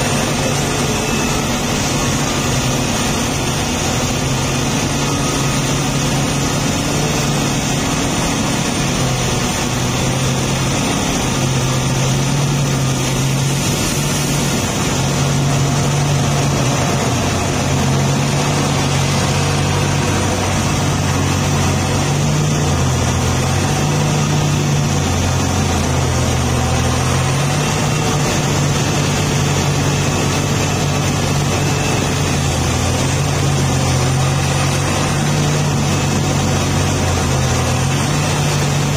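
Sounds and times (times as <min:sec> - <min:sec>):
excavator diesel engine droning: 0:00.0 - 0:38.9.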